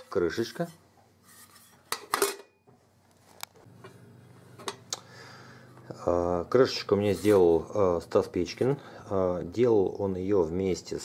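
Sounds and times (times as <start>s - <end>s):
metal lid and mess tin clinking: 1.9s - 2.6s.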